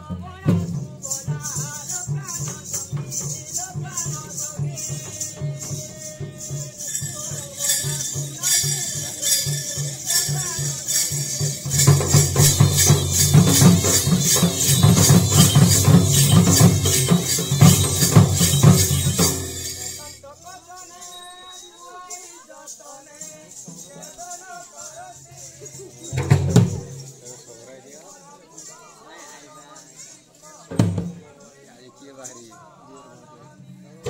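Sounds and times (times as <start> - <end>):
drum beaten with stick: 0.0 - 20.2, 26.0 - 27.2, 30.7 - 31.2
jingling metal percussion: 0.0 - 34.0.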